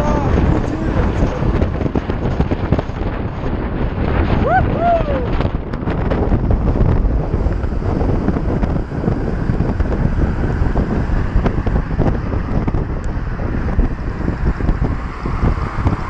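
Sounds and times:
wind rushing over microphone: 0.0s - 16.0s.

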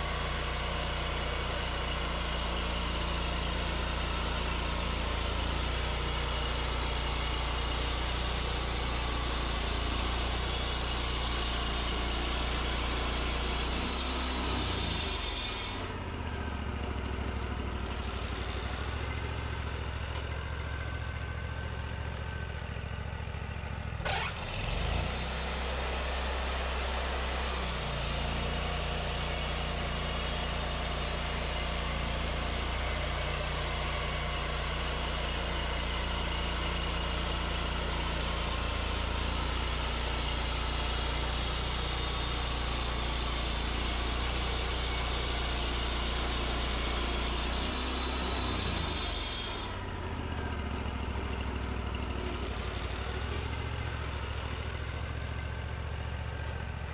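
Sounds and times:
band blade sawing log: 0.0s - 16.0s, 24.0s - 49.8s
sawmill engine revving: 0.0s - 21.6s, 23.9s - 56.9s.

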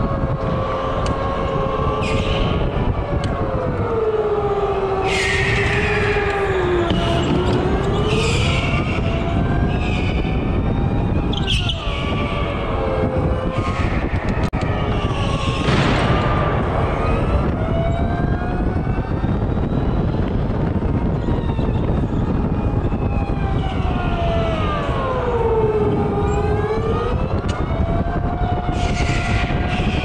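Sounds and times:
high squeals: 5.0s - 9.1s.

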